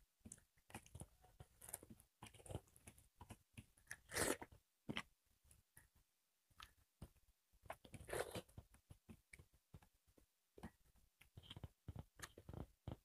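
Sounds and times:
chewing and crunching: 0.2s - 5.1s.

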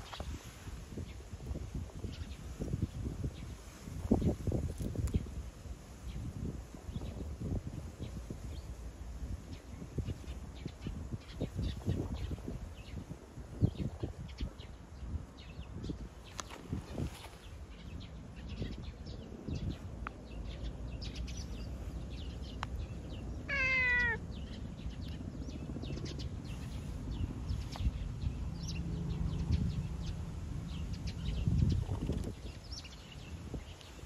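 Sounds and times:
cat meowing: 23.4s - 24.2s.

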